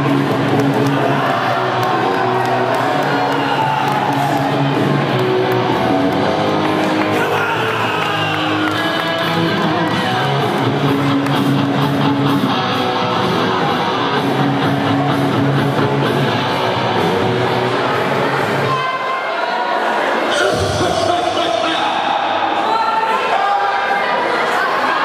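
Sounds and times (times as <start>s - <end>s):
loud rock music with electric guitar: 0.0s - 18.2s.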